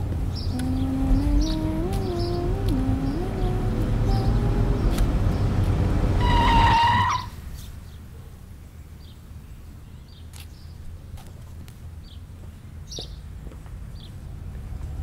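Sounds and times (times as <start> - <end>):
low steady hum: 0.0 - 6.3
bird chirps: 0.3 - 5.5
car horn honk: 6.1 - 7.3.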